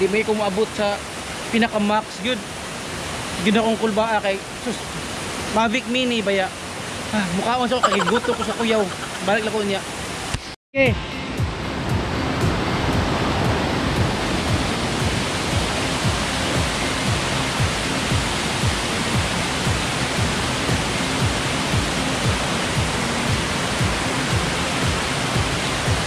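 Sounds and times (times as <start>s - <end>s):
water rushing over rocks: 0.0s - 10.5s, 11.6s - 26.0s
background music with low beat: 10.9s - 26.0s.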